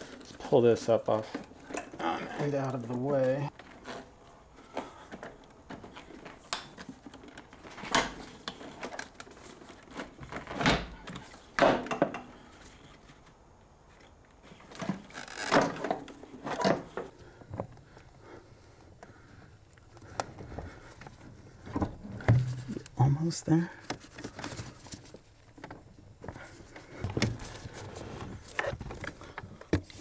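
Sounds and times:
car parts knocking and scraping: 20.0s - 23.0s.

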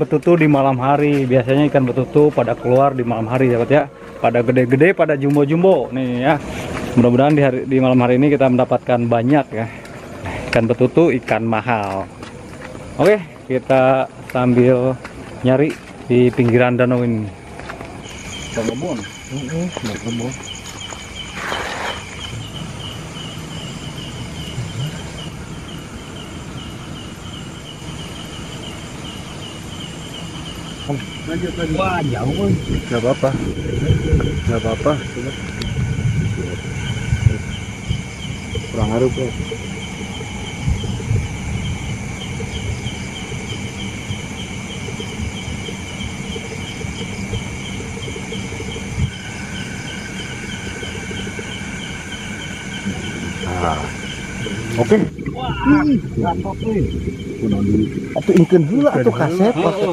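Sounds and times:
insects chirping: 0.0s - 59.9s
low rumbling noise: 17.2s - 59.9s.

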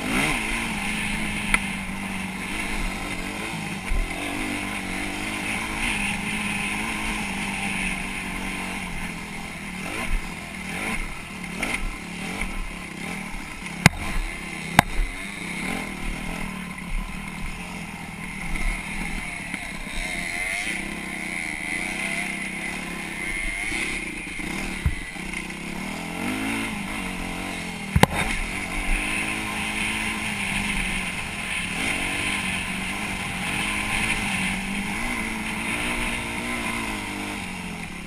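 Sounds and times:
dirt bike engine revving: 0.0s - 38.0s
sharp knocks: 13.9s - 15.0s, 27.9s - 28.3s.

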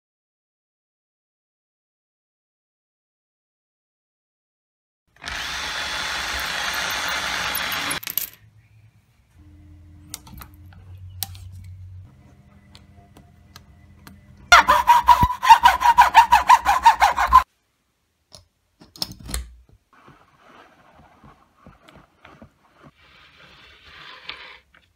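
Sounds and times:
power tool pulsing with high whine: 5.2s - 8.0s
power tool running steadily: 5.2s - 8.0s.

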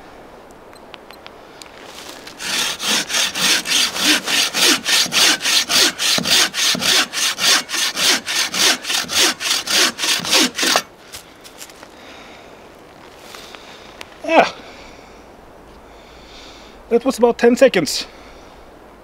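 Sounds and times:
saw cutting through log: 2.2s - 10.9s.

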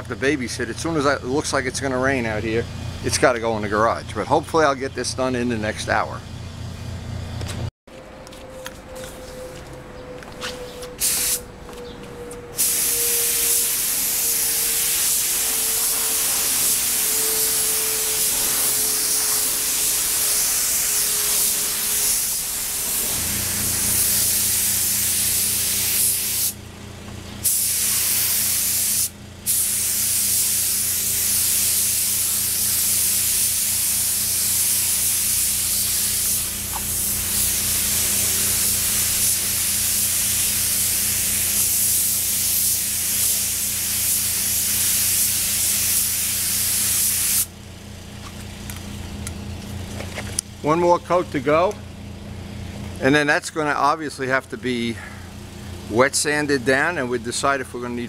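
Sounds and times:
spray gun hissing: 11.0s - 11.4s, 12.6s - 26.6s, 27.4s - 47.5s.

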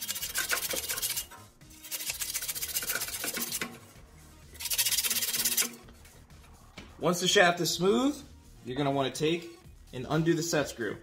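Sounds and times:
sandpaper scratching on metal: 0.0s - 3.8s, 4.5s - 5.8s.

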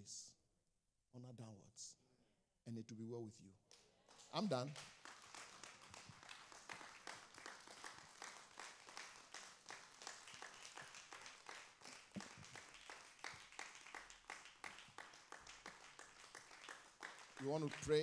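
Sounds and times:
crowd applauding: 4.1s - 18.0s.

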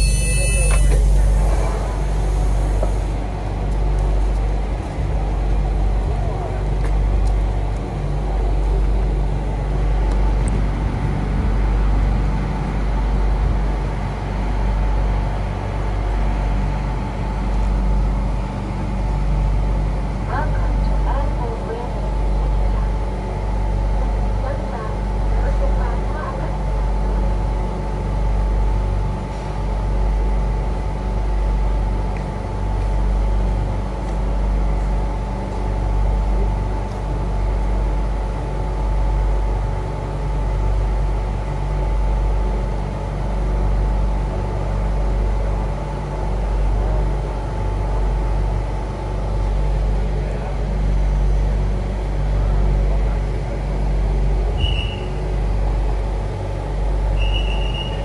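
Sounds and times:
short high beeps: 0.0s - 1.1s
train equipment humming: 0.0s - 58.0s.

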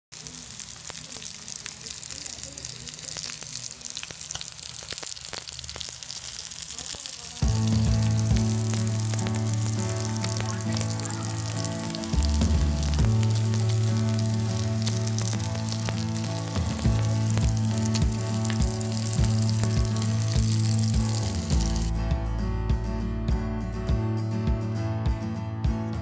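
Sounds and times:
fish sizzling in frying pan: 0.1s - 21.9s
background music sustained notes: 7.4s - 26.0s.

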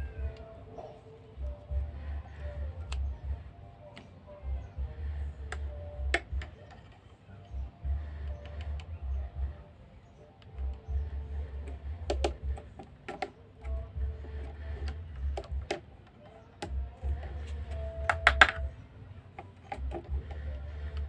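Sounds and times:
plastic switch clicks and taps: 11.6s - 13.8s.

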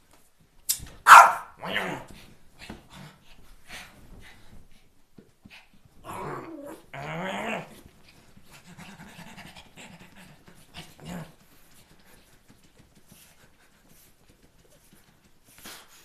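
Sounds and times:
small dog growling and snarling: 1.6s - 2.1s, 6.0s - 7.8s, 10.8s - 11.4s
dog panting: 7.8s - 16.0s.

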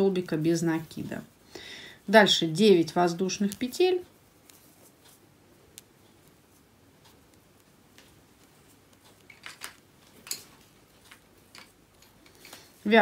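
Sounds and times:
crochet hook clicks and scratches: 4.4s - 9.5s.

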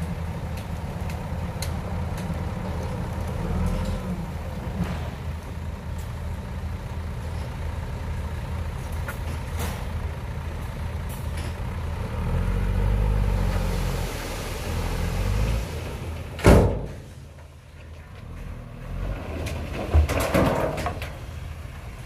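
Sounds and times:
diesel truck engine running: 0.0s - 20.0s
soil emptying from truck bed: 12.8s - 17.3s, 18.8s - 21.4s.

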